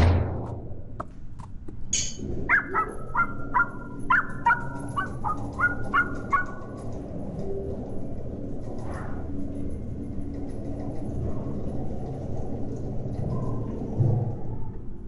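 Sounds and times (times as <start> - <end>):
dog barking: 2.5 - 6.8.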